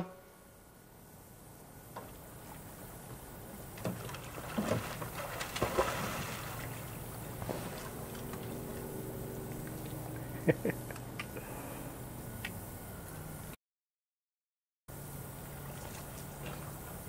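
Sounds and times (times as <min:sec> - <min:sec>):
water splashing: 0:03.6 - 0:10.4.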